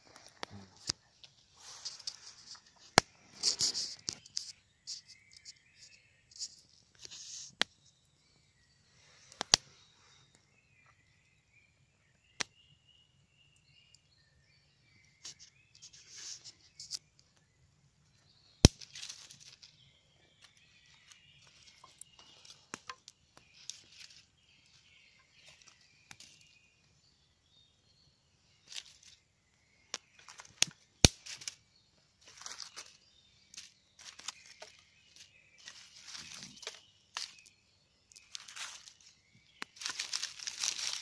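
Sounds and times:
fire popping: 0:29.9 - 0:31.6.

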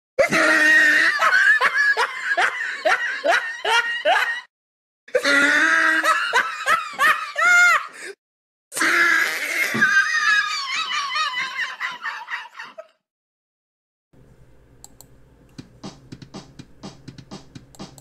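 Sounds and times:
person laughing: 0:00.2 - 0:04.5, 0:05.1 - 0:08.1, 0:09.7 - 0:13.0.

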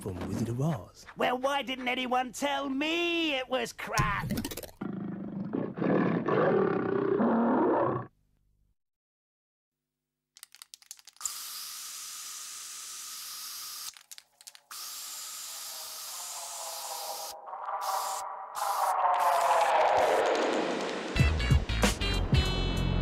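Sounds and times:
gorilla roar: 0:04.8 - 0:08.1
aerosol spray can hissing: 0:11.2 - 0:14.0, 0:14.6 - 0:21.0.

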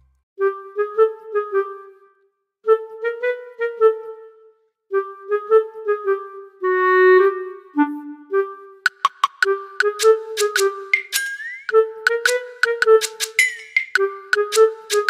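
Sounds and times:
clarinet playing: 0:00.4 - 0:02.1, 0:02.7 - 0:15.0.

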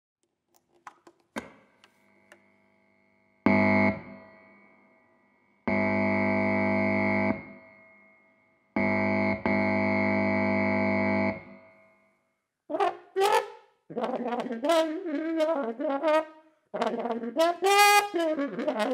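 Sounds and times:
cable handling clicks: 0:00.5 - 0:02.0.

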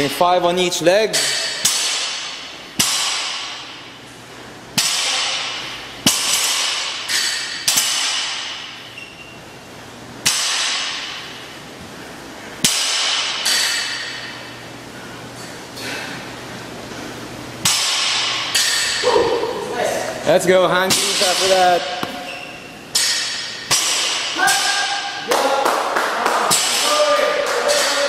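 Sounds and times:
barbells clanking on gym floor: 0:04.8 - 0:09.4, 0:12.6 - 0:14.6, 0:17.6 - 0:19.4, 0:20.8 - 0:25.2.

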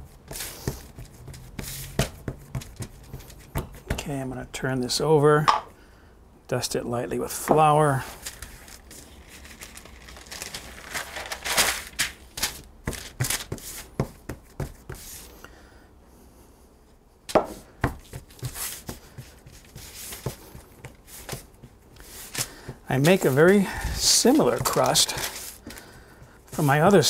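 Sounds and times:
hands patting dough: 0:00.0 - 0:04.1, 0:09.8 - 0:15.3, 0:17.3 - 0:27.0
parchment paper rustling: 0:00.3 - 0:03.9, 0:07.8 - 0:15.4, 0:17.9 - 0:27.0.

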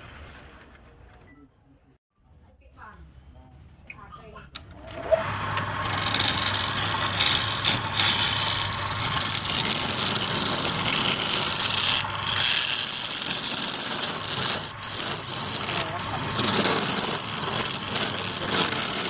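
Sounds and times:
lathe humming: 0:04.8 - 0:19.0
scraper rasping on turning wood: 0:05.5 - 0:19.0.

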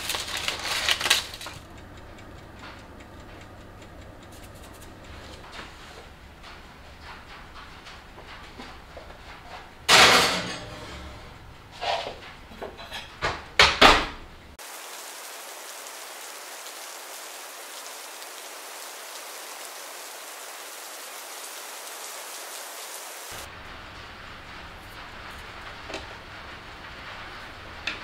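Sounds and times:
steady rain falling: 0:00.0 - 0:12.7, 0:14.4 - 0:28.0
dish clattering at oven: 0:04.3 - 0:14.2.

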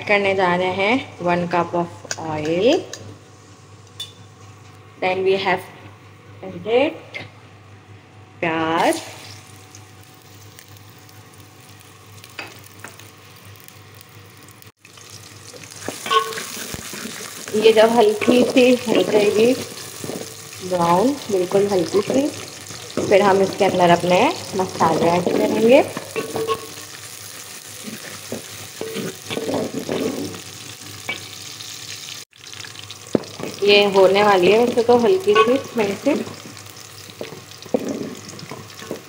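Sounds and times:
onions sizzling in oil: 0:08.8 - 0:39.0.

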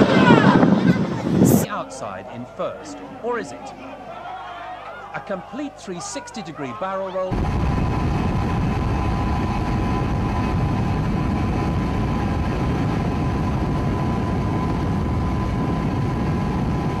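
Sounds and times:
wind on microphone: 0:00.0 - 0:01.8, 0:07.3 - 0:17.0
faint steady whine: 0:00.0 - 0:17.0.

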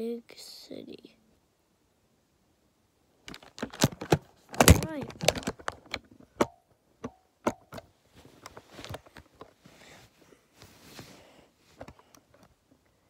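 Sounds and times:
sleeve rustling against device: 0:08.1 - 0:12.5.

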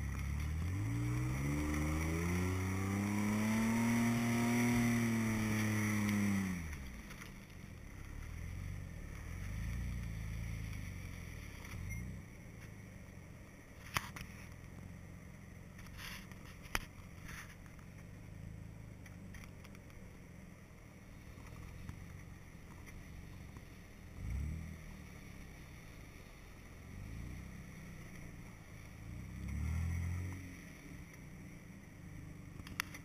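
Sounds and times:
engine revving at low revs: 0:00.0 - 0:12.2, 0:21.1 - 0:33.0.

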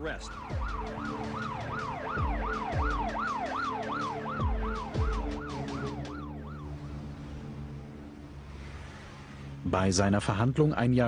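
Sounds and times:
police siren yelping: 0:00.0 - 0:07.2.

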